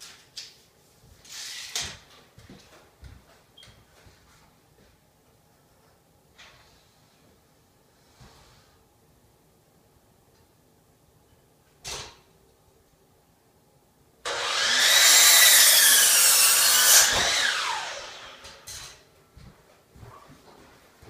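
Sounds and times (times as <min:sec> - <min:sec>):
miter saw cutting wood: 0:14.3 - 0:18.7.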